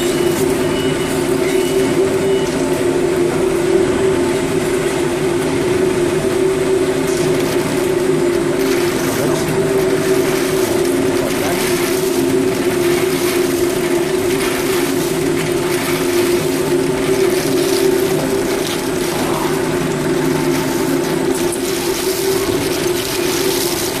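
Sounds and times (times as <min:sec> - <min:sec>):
production line machine hum: 0:00.0 - 0:24.0.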